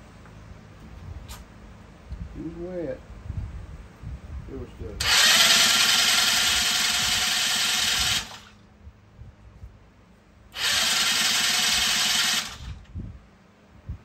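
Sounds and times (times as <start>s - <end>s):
electric starter cranking engine: 5.0s - 8.6s, 10.5s - 12.9s.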